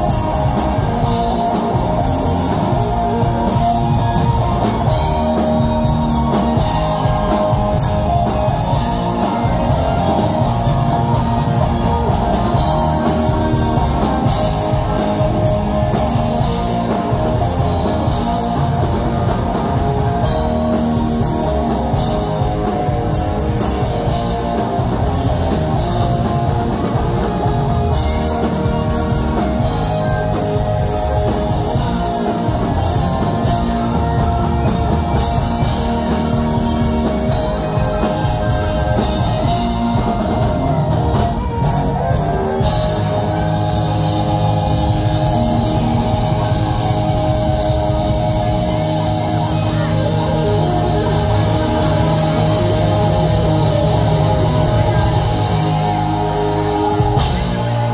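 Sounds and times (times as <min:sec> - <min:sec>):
bass guitar: 0:00.0 - 0:57.9
drum kit: 0:00.0 - 0:57.9
electric guitar: 0:00.0 - 0:57.9.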